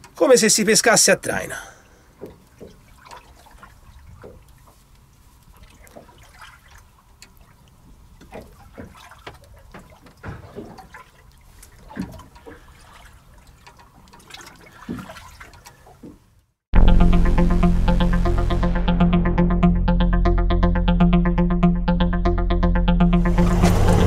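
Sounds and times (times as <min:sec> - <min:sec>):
water lapping against boat hull: 0:01.8 - 0:16.5.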